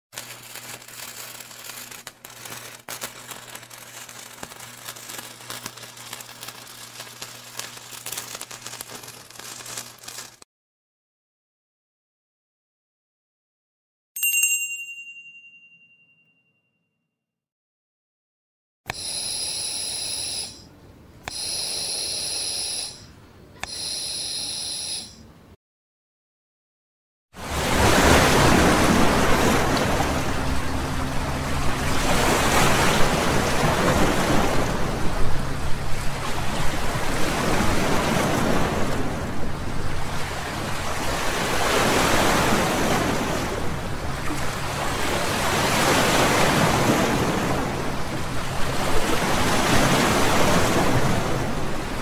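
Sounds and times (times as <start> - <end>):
electric sparks crackling: 0.2 - 10.4, 18.9 - 20.6, 21.3 - 23.1, 23.7 - 25.2
low electrical hum: 0.2 - 10.4, 27.5 - 41.5
oxygen machine hissing and whistling: 18.9 - 20.7, 21.3 - 25.2
oxygen machine click: 21.3 - 23.0.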